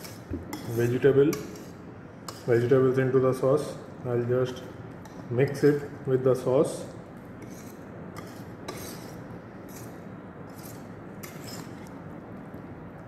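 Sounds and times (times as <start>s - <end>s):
whisk scraping metal pan: 0.0s - 3.0s, 7.4s - 11.9s
steady background hiss: 0.0s - 13.0s.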